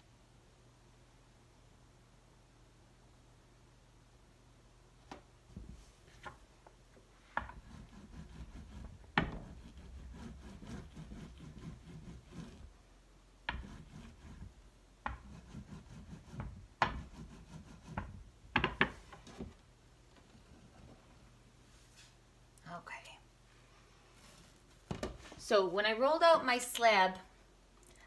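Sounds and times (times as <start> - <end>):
rolling pin rubbing over clay: 7.0 - 12.8, 13.4 - 19.5.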